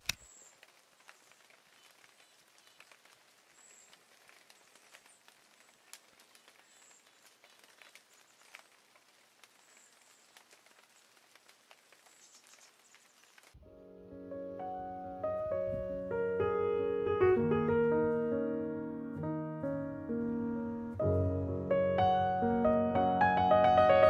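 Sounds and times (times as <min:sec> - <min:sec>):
crackly background hiss: 0:00.0 - 0:18.6.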